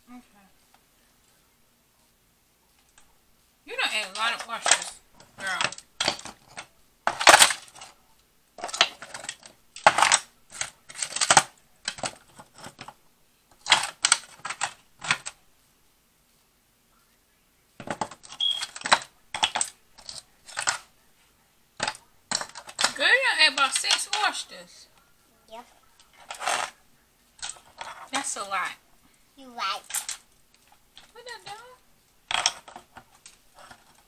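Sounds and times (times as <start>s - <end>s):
shell pieces rattling on foil pans: 4.1s - 7.9s, 8.6s - 13.0s, 13.6s - 15.4s, 17.8s - 20.9s, 21.8s - 24.5s, 26.1s - 26.8s, 29.8s - 31.6s, 32.3s - 34.0s
crab shells cracking: 8.6s - 12.7s.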